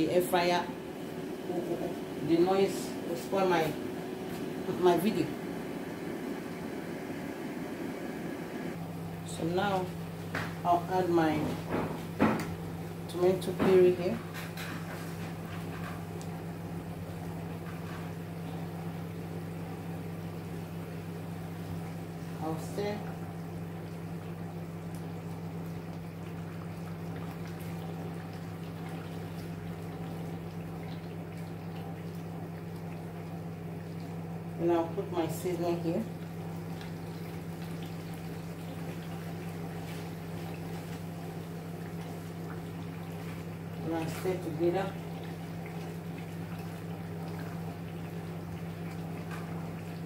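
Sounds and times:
air fryer humming: 0.0s - 50.0s
sauce bubbling in a pot: 14.2s - 50.0s.

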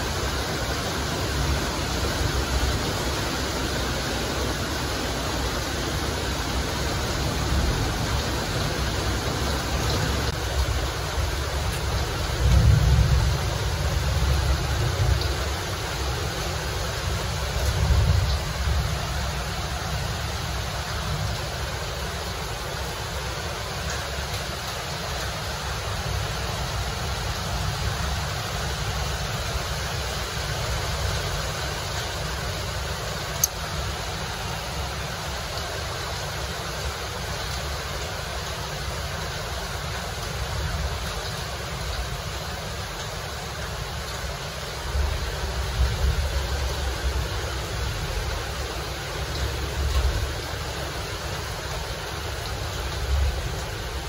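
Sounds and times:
steady rushing noise: 0.0s - 20.8s.

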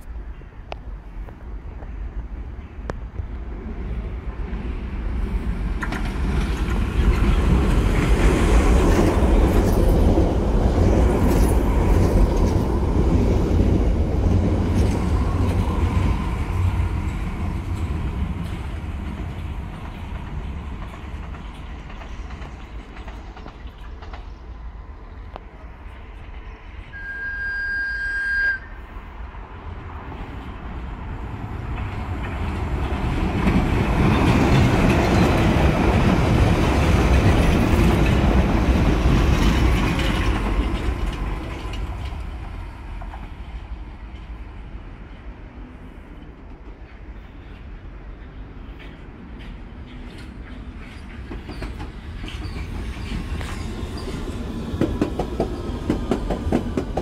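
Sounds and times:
train wheels rumbling on rails: 0.0s - 57.0s
train horn: 26.9s - 29.0s.

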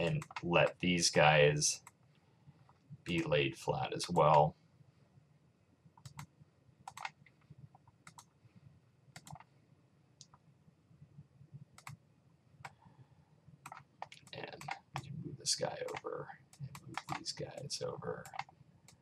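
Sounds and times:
faint low hum: 0.0s - 19.0s
computer mouse clicks: 6.0s - 6.3s, 6.9s - 7.2s, 8.0s - 8.3s, 9.2s - 9.5s, 11.8s - 12.0s, 13.6s - 15.1s, 15.7s - 19.0s.

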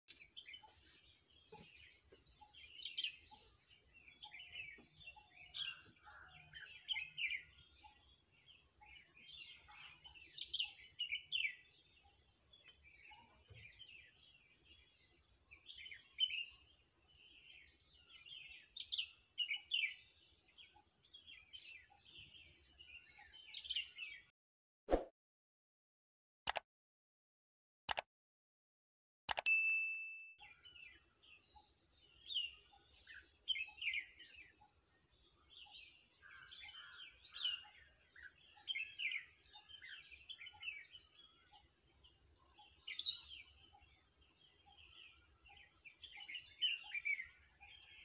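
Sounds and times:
small birds chirping: 0.1s - 24.3s, 30.3s - 48.0s.

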